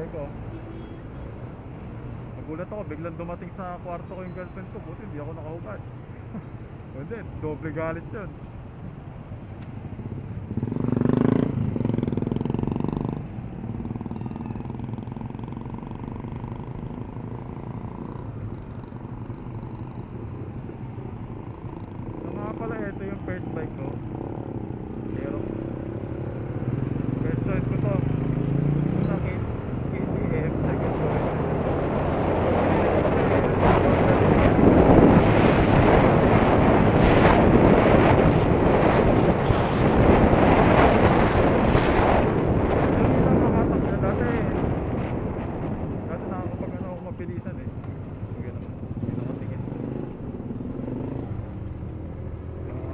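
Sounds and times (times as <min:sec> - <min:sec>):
road and wind noise: 0:00.0 - 0:52.9
wind buffeting microphone: 0:30.0 - 0:47.0.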